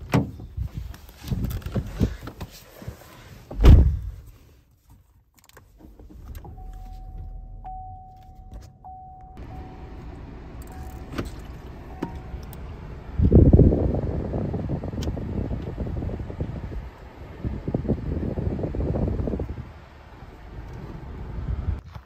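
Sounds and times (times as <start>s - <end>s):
car door shutting: 3.5s - 4.2s, 10.6s - 12.7s
car engine humming: 5.8s - 21.8s
electronic warning chime: 6.6s - 9.8s
fan rushing air: 9.4s - 21.8s.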